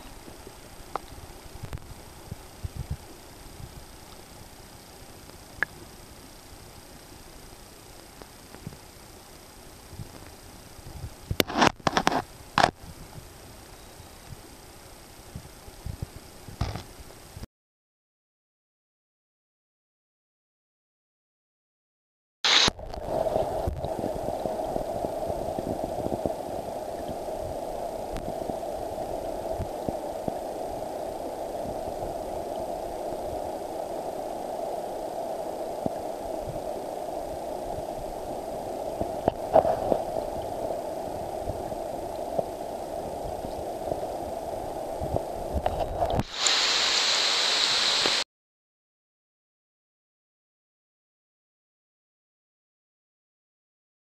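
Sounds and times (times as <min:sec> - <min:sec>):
muffled underwater water rush: 0:00.0 - 0:17.4, 0:22.5 - 0:48.2.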